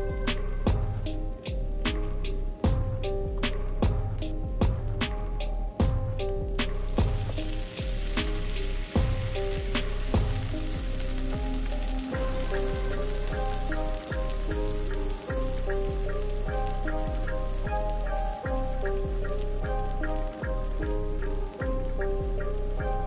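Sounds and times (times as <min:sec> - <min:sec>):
music with steady beat: 0:00.0 - 0:23.0
food sizzling: 0:05.8 - 0:23.0.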